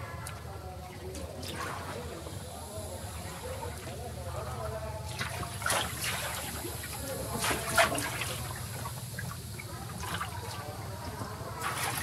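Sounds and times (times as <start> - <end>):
water sloshing and trickling: 0.2 - 4.0, 5.0 - 12.0
short water splashes: 5.1 - 12.0.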